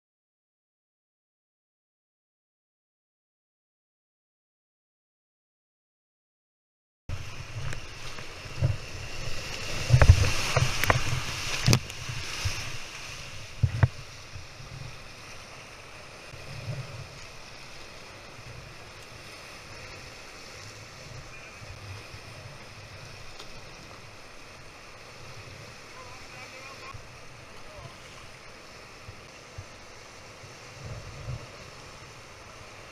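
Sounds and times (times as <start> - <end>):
whitewater rushing: 7.1 - 32.9.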